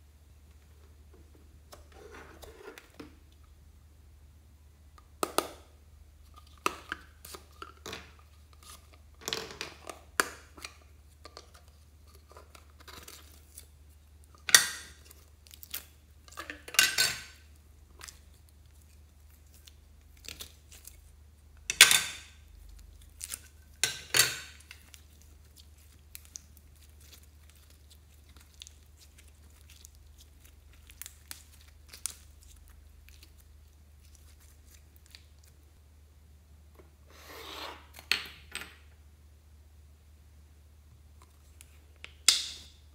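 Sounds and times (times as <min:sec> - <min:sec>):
slime squelching: 0:10.5 - 0:16.3, 0:17.4 - 0:21.5, 0:22.4 - 0:35.8.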